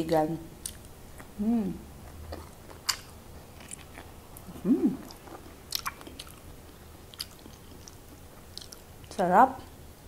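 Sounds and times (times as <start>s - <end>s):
person chewing food: 0.6s - 9.1s
person humming: 1.4s - 1.8s, 4.5s - 5.1s
mouth smacks and clicks: 3.7s - 6.4s.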